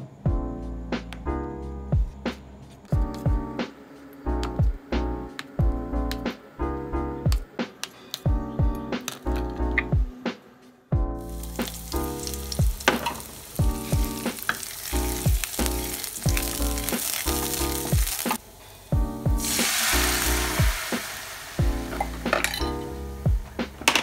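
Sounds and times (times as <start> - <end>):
background music: 0.0 - 24.0
garlic sizzling in hot oil: 11.2 - 18.4, 19.3 - 23.4
stock poured into hot pan: 11.2 - 18.4, 19.4 - 22.8.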